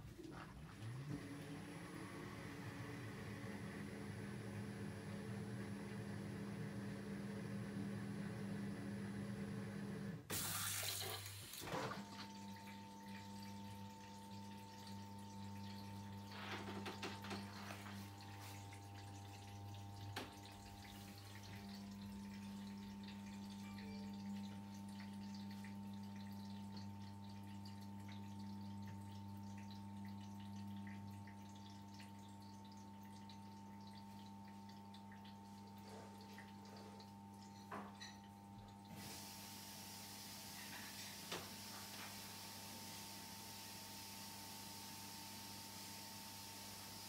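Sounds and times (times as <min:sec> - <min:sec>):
dishwasher pump hum: 0:00.0 - 0:47.0.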